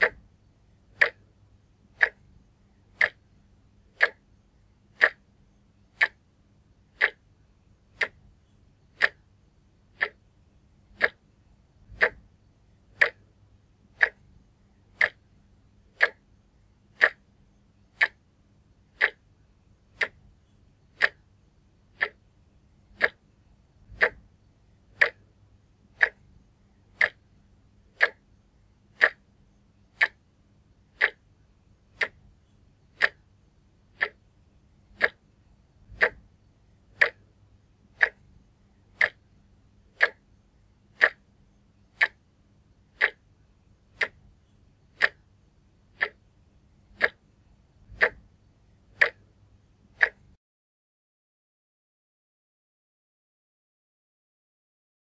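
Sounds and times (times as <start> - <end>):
wall clock ticking: 0.0 - 0.2, 0.9 - 1.3, 1.9 - 2.3, 2.9 - 3.3, 3.9 - 4.2, 4.9 - 5.3, 5.9 - 6.3, 6.9 - 7.3, 8.0 - 8.2, 8.8 - 11.2, 11.8 - 14.3, 14.9 - 15.3, 15.9 - 16.3, 16.9 - 17.3, 17.9 - 18.3, 18.9 - 19.3, 20.0 - 20.2, 20.8 - 21.3, 21.9 - 22.3, 22.9 - 23.2, 23.9 - 24.3, 24.9 - 27.3, 27.9 - 28.3, 29.0 - 29.3, 29.9 - 30.3, 30.9 - 31.3, 32.0 - 33.3, 33.9 - 34.3, 34.9 - 35.2, 35.9 - 36.3, 36.9 - 39.3, 39.9 - 40.3, 41.0 - 41.3, 41.9 - 42.3, 43.0 - 43.3, 44.0 - 45.3, 45.9 - 46.2, 46.9 - 47.2, 47.9 - 48.3, 48.9 - 49.3, 49.9 - 50.4.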